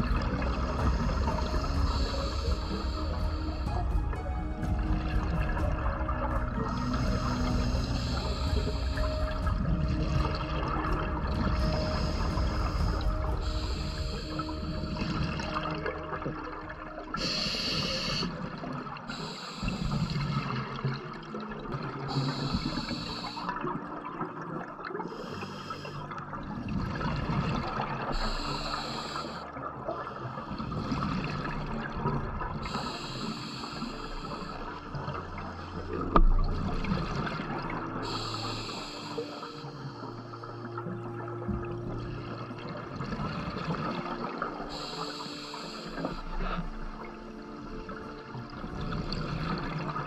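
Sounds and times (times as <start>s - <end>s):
diver inhaling through regulator: 0.0s - 4.1s, 6.3s - 15.8s, 17.2s - 20.6s, 22.1s - 23.6s, 25.1s - 26.1s, 28.1s - 31.4s, 32.6s - 36.2s, 38.0s - 40.9s, 44.6s - 47.6s
gurgling exhaled bubbles: 0.0s - 50.0s.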